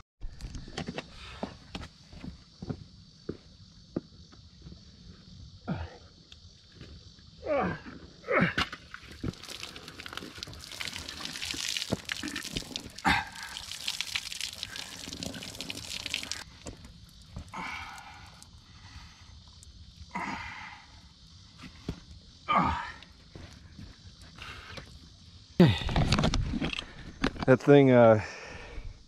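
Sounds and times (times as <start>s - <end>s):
water dripping and spattering: 8.9s - 18.6s
wet crackle of handling: 9.0s - 17.6s.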